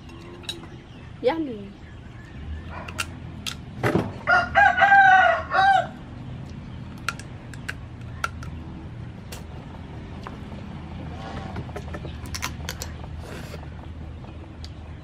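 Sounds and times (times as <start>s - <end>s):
rooster crowing: 4.2s - 6.0s.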